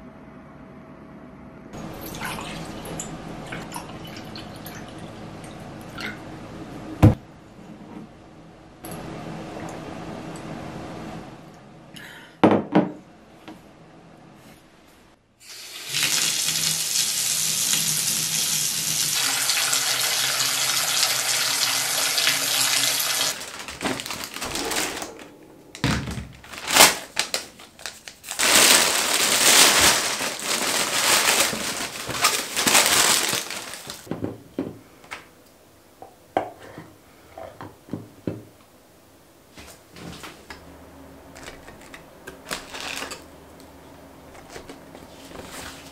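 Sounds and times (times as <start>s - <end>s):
water running: 1.8s - 6.2s, 15.4s - 26.8s
plastic bag rustling: 22.8s - 34.1s, 41.4s - 43.2s.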